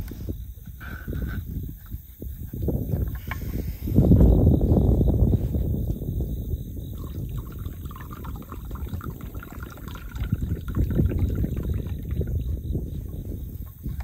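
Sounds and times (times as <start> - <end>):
coffee pouring into metal cup: 6.9 - 12.5.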